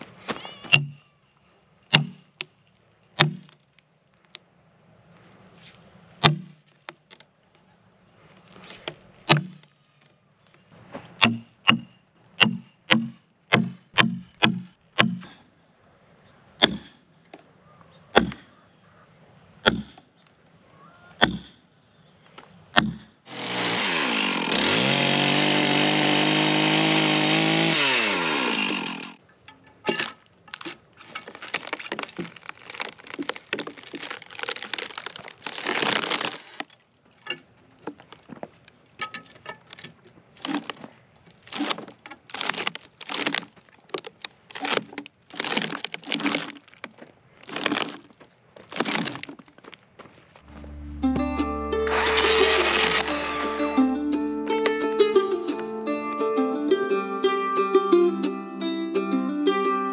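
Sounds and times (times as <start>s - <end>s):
sledgehammer striking steel wedges: 0.5s - 1.1s, 1.9s - 2.4s, 3.2s - 3.6s, 6.2s - 6.6s, 9.3s - 9.7s, 11.2s - 15.4s, 16.6s - 17.0s, 19.6s - 20.0s, 21.2s - 21.6s, 22.7s - 23.2s
wood crackling and splintering: 1.9s - 4.4s, 22.8s - 50.6s, 51.7s - 53.8s
chainsaw revving: 23.3s - 29.2s, 51.7s - 53.8s.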